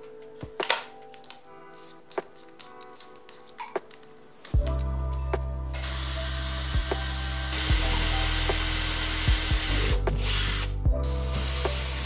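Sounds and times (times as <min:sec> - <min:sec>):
cordless drill boring into wood: 0:05.9 - 0:10.7, 0:11.3 - 0:12.0.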